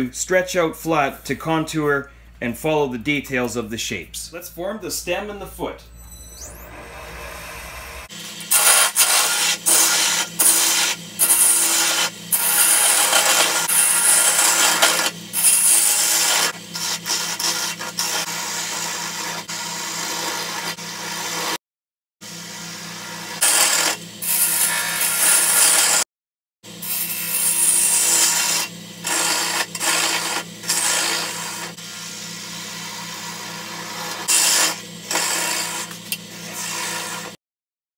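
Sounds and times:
wood lathe humming: 6.4s - 19.5s, 26.8s - 37.4s
turning tool scraping wood: 7.0s - 19.4s, 27.0s - 32.0s, 32.9s - 37.4s.

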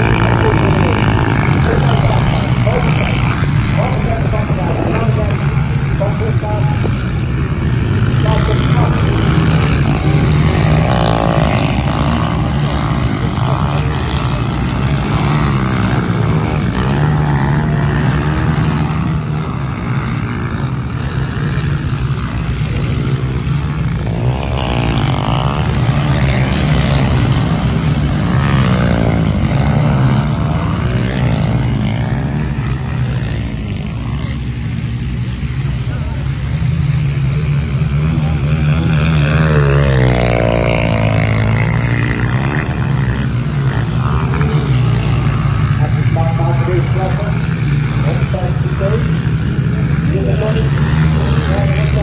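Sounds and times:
motorcycles revving past: 0.0s - 52.0s.

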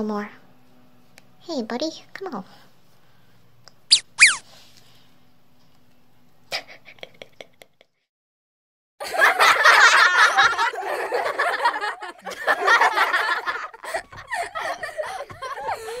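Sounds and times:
loud lively laughter: 9.0s - 16.0s.

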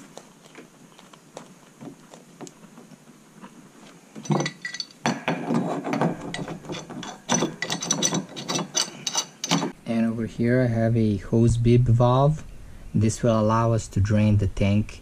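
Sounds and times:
wrench clicking and rattling: 6.4s - 9.8s.

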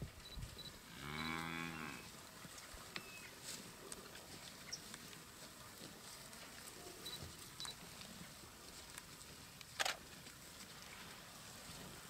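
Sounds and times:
buffalo low moo: 0.8s - 2.1s.

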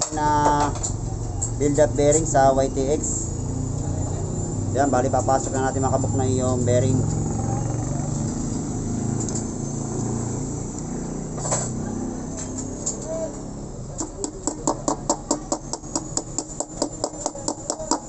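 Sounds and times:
hammer tapping metal: 14.0s - 18.0s.

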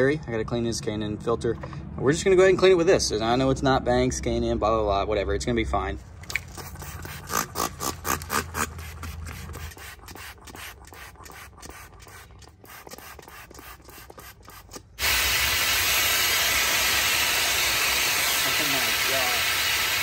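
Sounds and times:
spray bottle squirts: 6.2s - 20.0s
hose water jet hissing: 6.4s - 20.0s.

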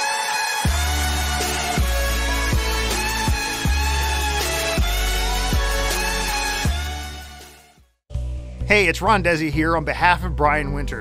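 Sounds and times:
synth chords: 0.6s - 8.5s.

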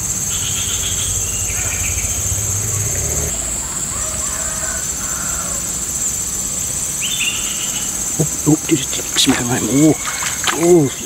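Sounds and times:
bird chirping: 0.0s - 3.8s, 6.8s - 11.0s
insects droning: 0.0s - 11.0s.

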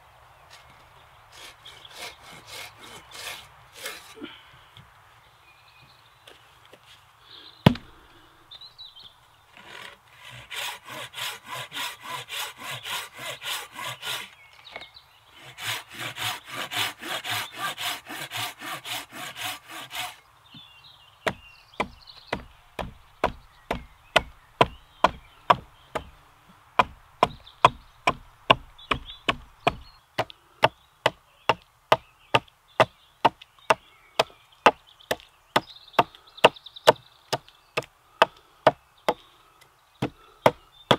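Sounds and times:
saw cutting wood: 1.3s - 4.2s, 9.6s - 14.3s, 15.4s - 20.2s
axe chopping wood: 7.6s - 8.0s, 21.2s - 26.1s, 26.8s - 35.3s
sharp knock: 7.7s - 7.9s.

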